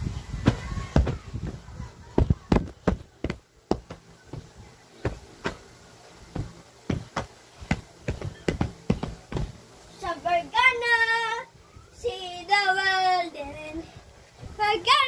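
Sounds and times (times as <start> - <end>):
sharp knocks: 6.4 - 9.5.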